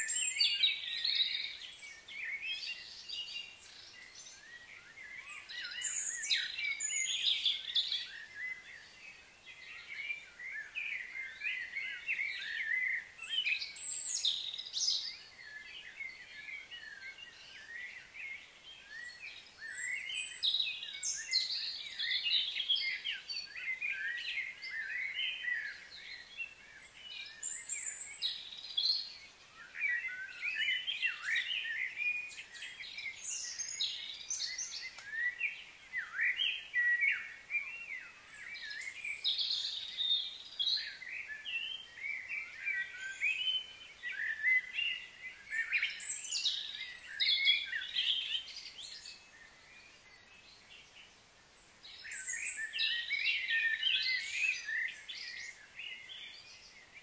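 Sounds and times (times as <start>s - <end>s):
birds chirping and calling: 0.0s - 57.0s.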